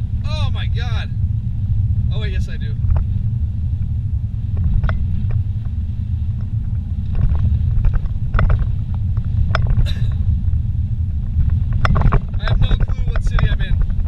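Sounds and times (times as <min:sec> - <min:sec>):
car cabin road rumble: 0:00.0 - 0:14.0
light clicks and knocks: 0:11.4 - 0:14.0.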